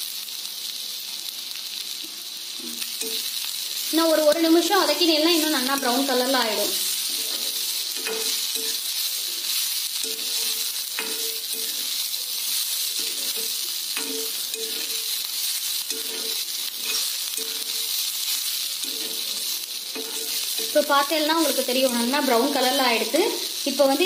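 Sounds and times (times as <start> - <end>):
onions sizzling in oil: 0.0 - 24.0
metal spatula scraping pan: 5.3 - 22.8.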